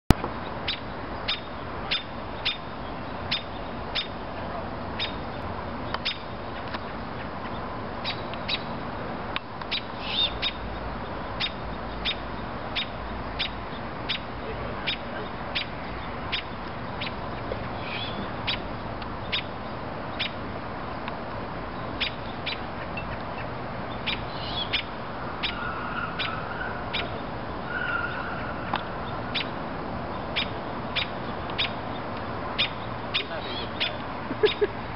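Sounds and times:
robin alarm ticks: 0.6s - 4.2s, 5.0s - 6.8s, 9.3s - 17.6s, 18.4s - 20.4s, 21.9s - 29.6s, 30.2s - 34.7s
hoarse bird calls: 22.0s - 29.5s, 32.6s - 34.7s.

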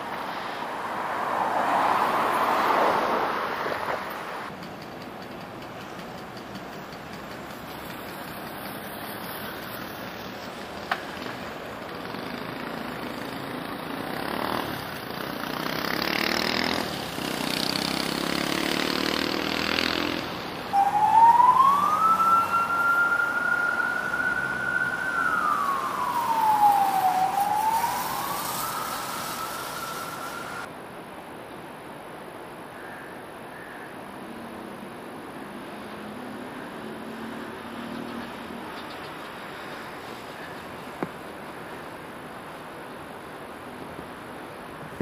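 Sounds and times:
passing vehicles: 0.0s - 30.8s, 34.3s - 45.0s
emergency vehicle siren wailing: 20.1s - 30.7s.

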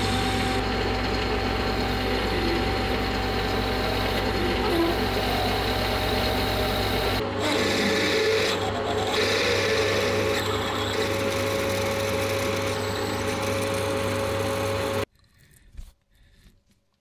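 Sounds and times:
drill boring into metal: 0.0s - 15.0s
metal lathe humming: 0.0s - 15.1s.

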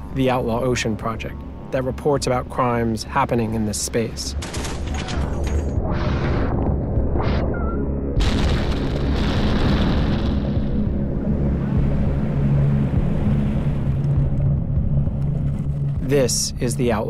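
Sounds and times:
dramatic score with low notes: 0.0s - 17.0s
heavy boom: 8.1s - 14.9s.

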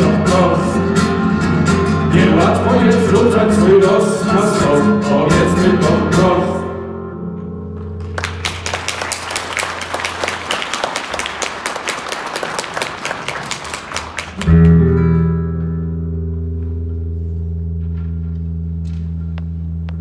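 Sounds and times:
audience applause: 8.0s - 14.8s.

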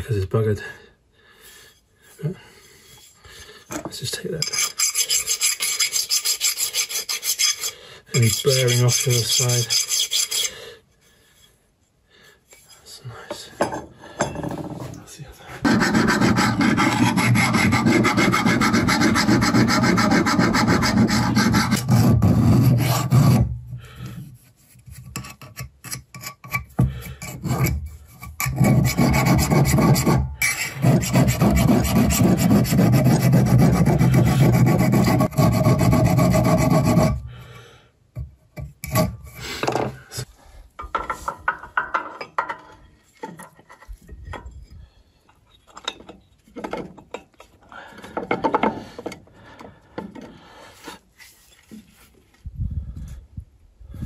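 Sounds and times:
hand file rasping on metal: 4.4s - 10.6s, 15.5s - 23.6s, 24.5s - 37.3s, 38.8s - 39.5s.

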